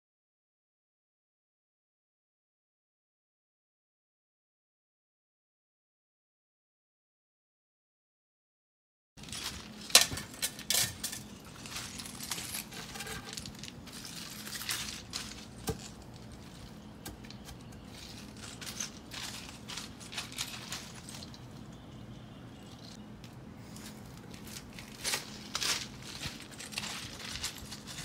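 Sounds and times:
gravel clinking and crunching: 9.2 - 28.0.

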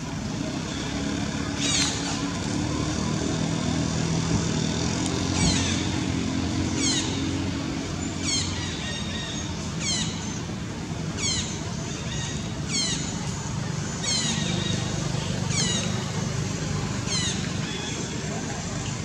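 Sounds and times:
engine running hum: 0.0 - 19.0.

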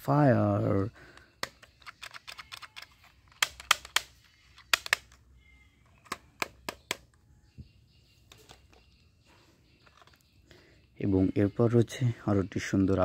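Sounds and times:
plastic toy pistol clicks: 1.4 - 5.2.

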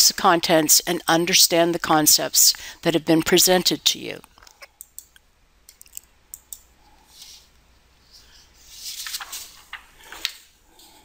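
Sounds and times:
rustling and handling noise: 6.8 - 11.0.

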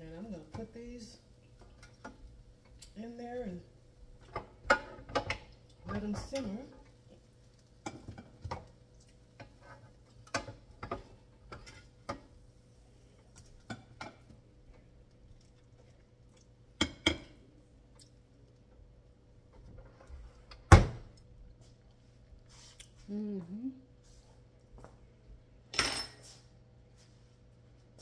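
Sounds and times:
pans and utensils clattering: 4.3 - 6.9.

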